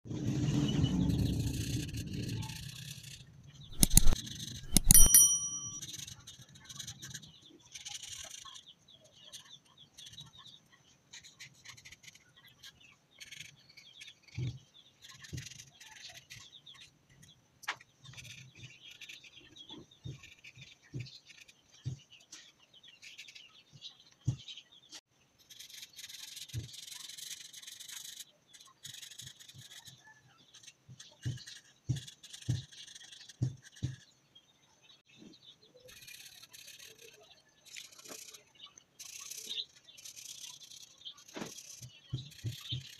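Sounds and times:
markers scratching on paper: 1.9 - 5.1, 10.0 - 14.3, 25.4 - 34.1, 35.9 - 38.4, 39.0 - 42.9
loud click with ringing tone: 3.7 - 5.8.

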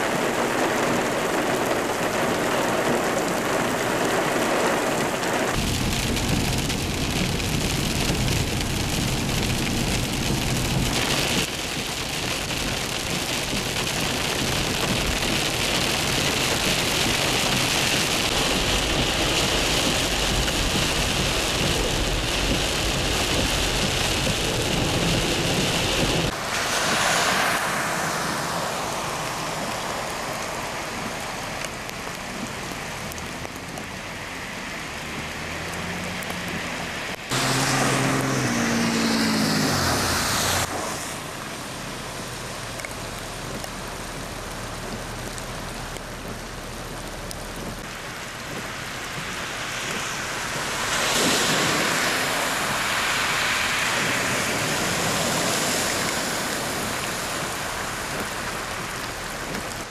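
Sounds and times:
heavy rain falling: 0.0 - 59.9
tyres splashing through water: 0.0 - 59.9
vehicle engine passing: 34.9 - 41.3.

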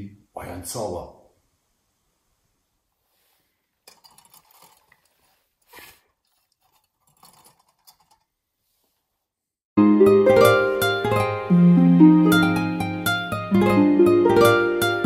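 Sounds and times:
breathy puff blowing out candle: 5.2 - 6.1.

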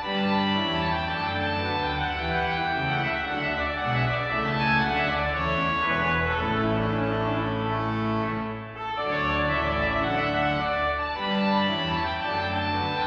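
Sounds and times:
pipe organ playing chords: 0.0 - 13.0.

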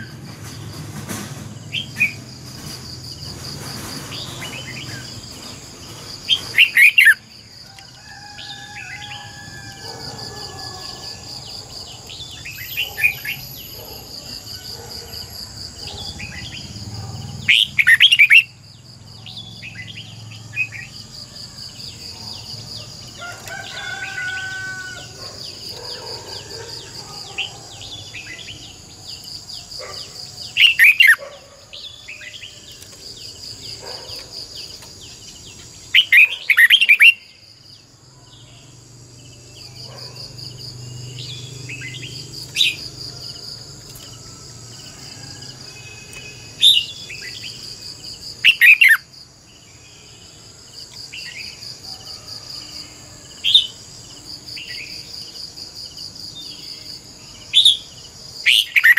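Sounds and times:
bird singing falling phrases: 0.0 - 7.3, 15.8 - 21.1, 39.5 - 43.0
high insect trill: 0.0 - 58.9.

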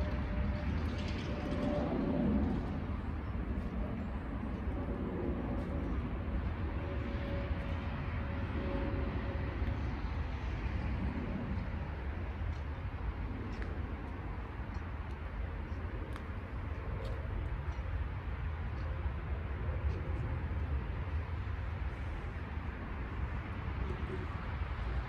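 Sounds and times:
low rumble: 0.0 - 25.0.

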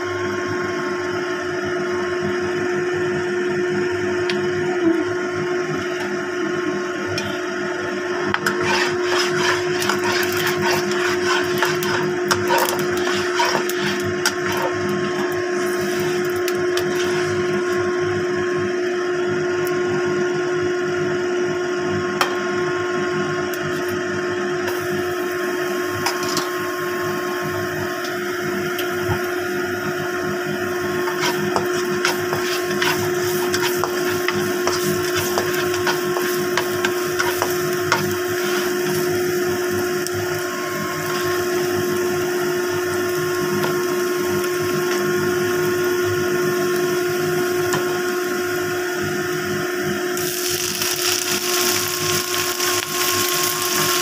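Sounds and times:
steady mechanical hum: 0.0 - 54.0
oil crackling in a wok: 8.4 - 17.7, 30.8 - 49.5, 50.1 - 54.0.

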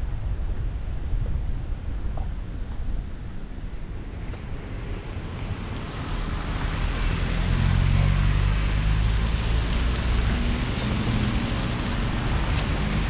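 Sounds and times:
low engine hum: 0.0 - 13.0
tyre hiss on wet road: 4.5 - 13.0.

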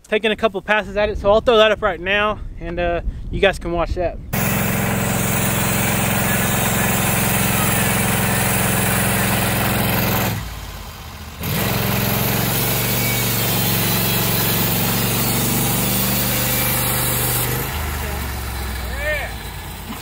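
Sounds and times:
band sawmill cutting log: 4.4 - 20.0.

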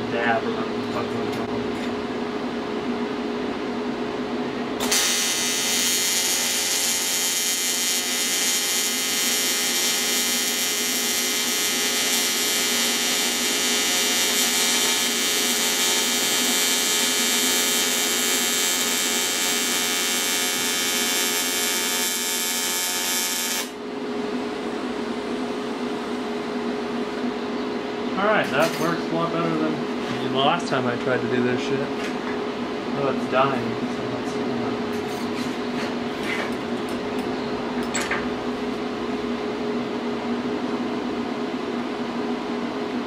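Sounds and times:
steady low hum: 0.0 - 43.0
welding arc buzzing: 4.8 - 23.8.

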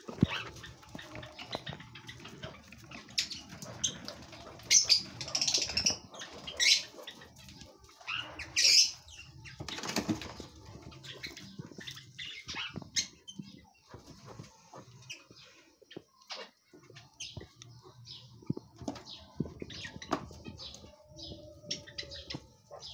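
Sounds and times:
wings fluttering: 0.0 - 15.5.

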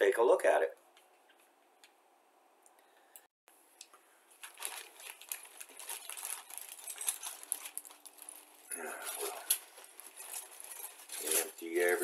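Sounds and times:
plastic bag crinkling: 4.3 - 12.0
plastic parts shifting: 4.4 - 12.0.

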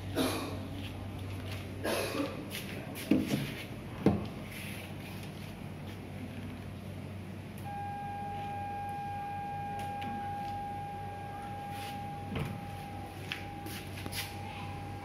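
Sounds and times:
low steady hum: 0.0 - 15.0
high-pitched electronic whine: 7.6 - 15.0.

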